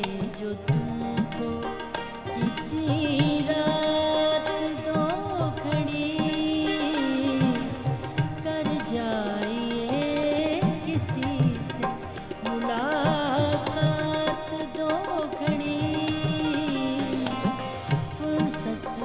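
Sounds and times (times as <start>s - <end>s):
tabla: 0.0s - 19.0s
woman singing: 0.0s - 19.0s.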